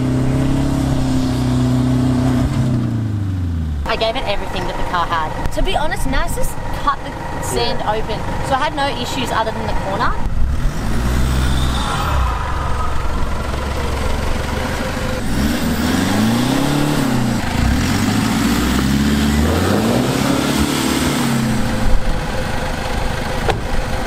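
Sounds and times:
engine revving under load: 0:00.0 - 0:03.9, 0:07.4 - 0:22.3.

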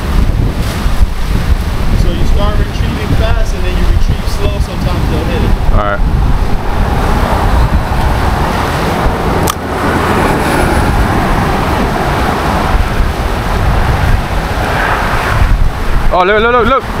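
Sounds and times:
highway traffic rushing: 0:00.0 - 0:17.0
wind buffeting microphone: 0:00.0 - 0:17.0
sharp click: 0:09.4 - 0:09.6.

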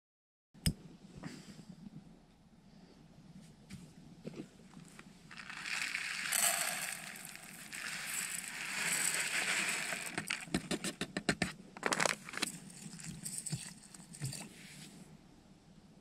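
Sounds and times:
dry food pouring into metal pot: 0:05.3 - 0:10.6, 0:12.0 - 0:14.4
foil packet rustling: 0:05.3 - 0:10.8, 0:11.8 - 0:14.5.

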